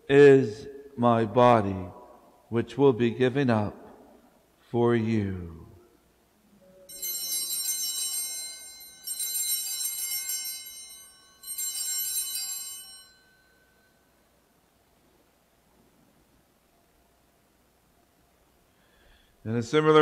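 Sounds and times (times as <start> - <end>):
altar bells jingling: 6.9 - 14.0.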